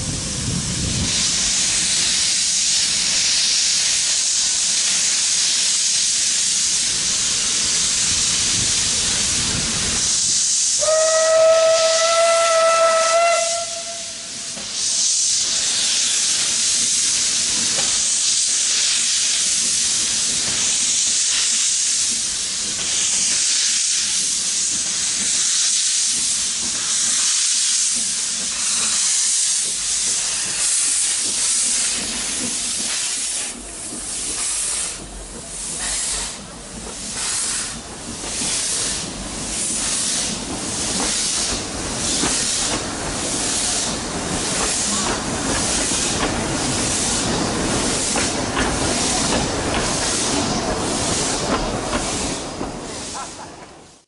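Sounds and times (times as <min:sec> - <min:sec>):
steam locomotive hissing steam: 0:00.0 - 0:54.0
steam whistle blast: 0:10.7 - 0:14.6.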